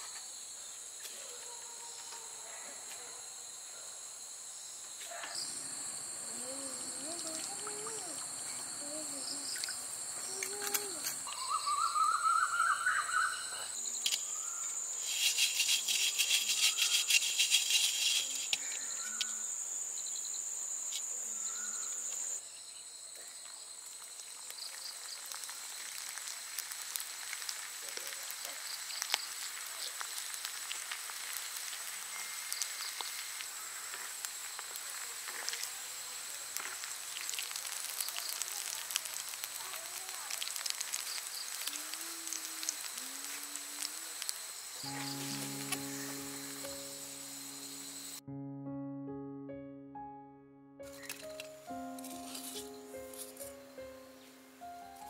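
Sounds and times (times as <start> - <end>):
insects chirping: 0.0 - 48.2, 50.8 - 55.0
hot oil sizzling: 24.0 - 48.2.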